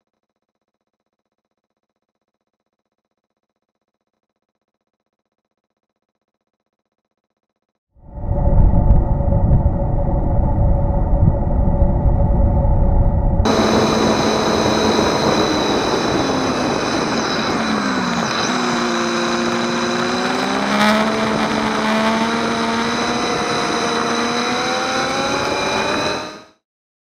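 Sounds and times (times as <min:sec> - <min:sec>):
wind rush: 0:08.0 - 0:26.3
motorcycle engine running: 0:13.3 - 0:26.5.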